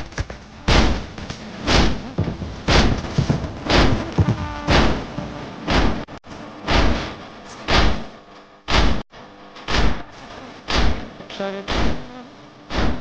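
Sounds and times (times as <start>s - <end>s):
hands beating chest: 0.0s - 6.0s.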